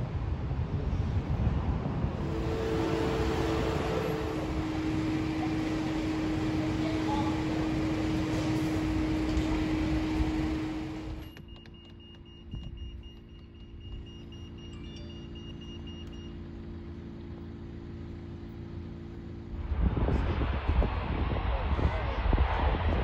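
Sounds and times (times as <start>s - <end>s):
engine rumble: 0.2s - 22.6s
faint high-pitched tones: 2.2s - 11.4s.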